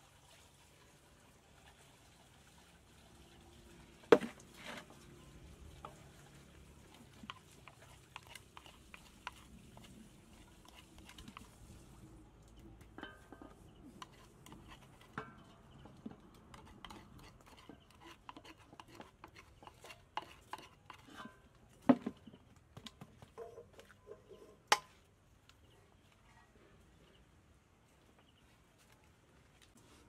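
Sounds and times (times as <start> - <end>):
spoon scraping in mortar: 5.7 - 12.1, 13.0 - 21.7.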